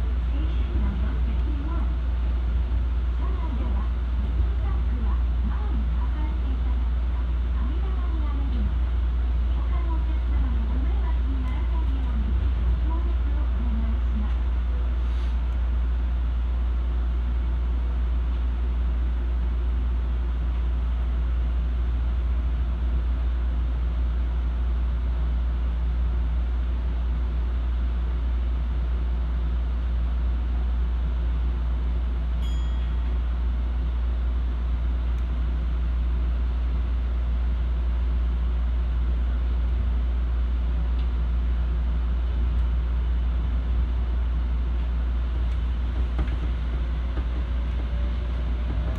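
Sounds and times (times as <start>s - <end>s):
monorail train rumbling: 0.0s - 48.9s
short high beep: 32.4s - 32.9s.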